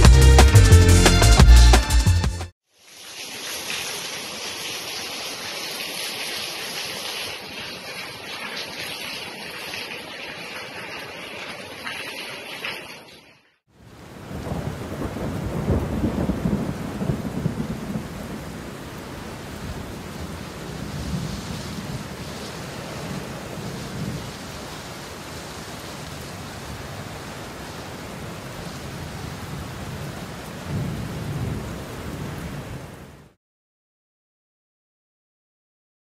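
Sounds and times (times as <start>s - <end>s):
steady rain: 2.7s - 33.4s
thunder rolling: 14.1s - 18.6s, 19.6s - 24.4s.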